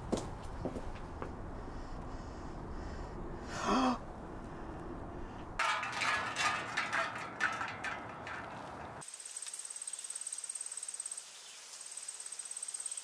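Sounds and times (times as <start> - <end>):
man gasping: 1.7 - 5.4
crickets chirping: 9.0 - 13.0.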